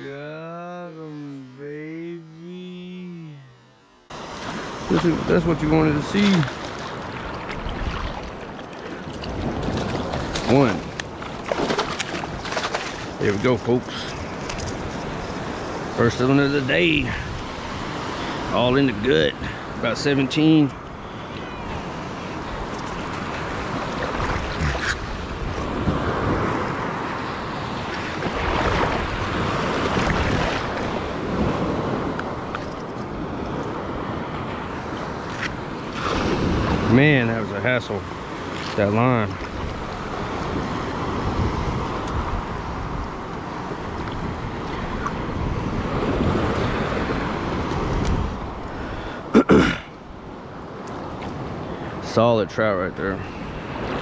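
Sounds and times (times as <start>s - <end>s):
surf washing around legs: 4.1s - 54.0s
wind buffeting microphone: 20.9s - 26.9s, 39.4s - 49.0s.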